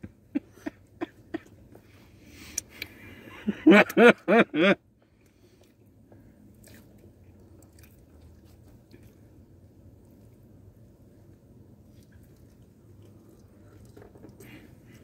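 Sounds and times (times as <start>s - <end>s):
people chewing: 6.5s - 9.4s.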